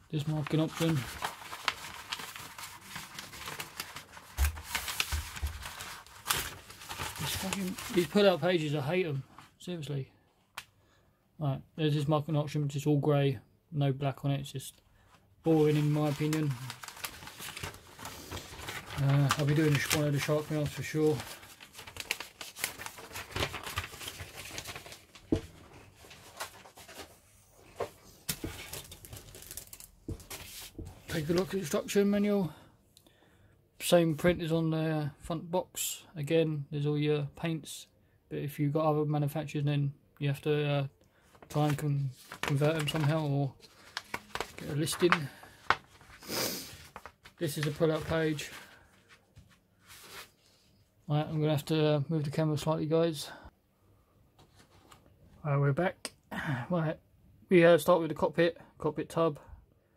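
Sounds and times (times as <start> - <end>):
paper rustling and crinkling: 0.2 - 9.6, 15.5 - 32.1, 41.2 - 50.7, 54.4 - 55.1.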